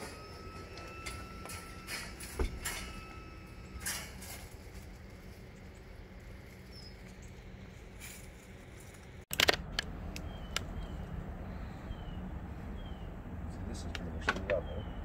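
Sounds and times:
sharp clicks and knocks: 9.3 - 10.7.

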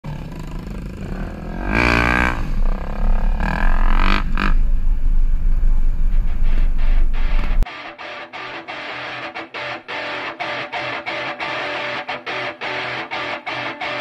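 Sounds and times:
engine revving: 0.0 - 7.6
vehicle engine rumble: 0.0 - 7.6.

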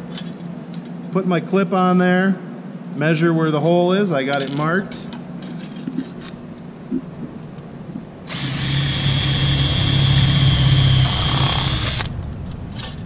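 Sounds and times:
cordless drill whining through metal: 8.3 - 12.1.

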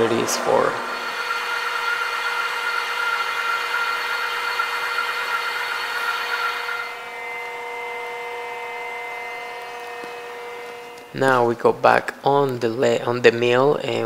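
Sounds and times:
lathe running hum: 0.0 - 11.2
lathe cutting hiss with whine: 0.4 - 7.4.

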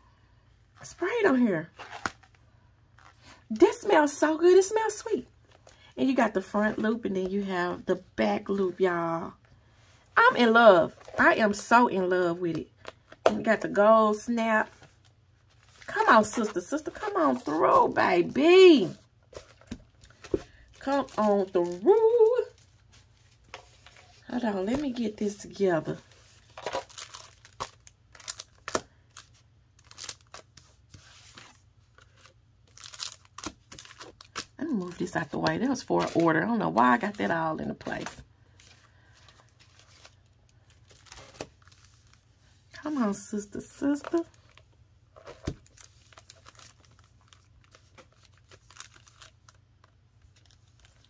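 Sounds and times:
paper and plastic rustling: 1.7 - 3.4, 14.7 - 42.5, 44.0 - 51.0.

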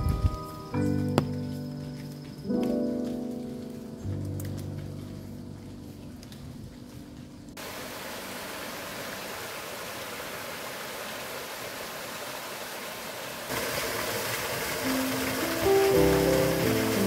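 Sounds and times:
small waterfall splashing into pool: 7.6 - 17.0
stream rushing over rock: 7.6 - 17.0.

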